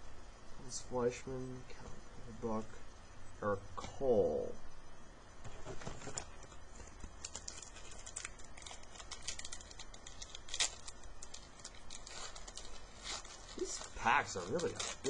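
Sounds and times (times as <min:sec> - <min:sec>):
wrapper crinkling: 0:05.4 - 0:15.0.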